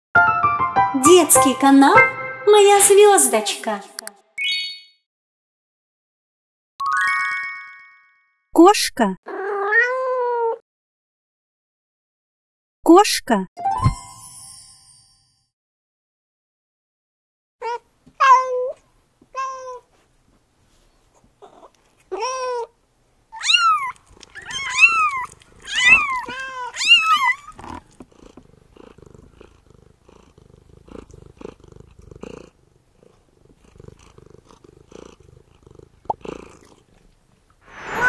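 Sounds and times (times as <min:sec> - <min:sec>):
cat meowing: 0:09.3 - 0:10.6, 0:17.6 - 0:19.9, 0:21.4 - 0:28.4
kitten purring: 0:23.5 - 0:37.5.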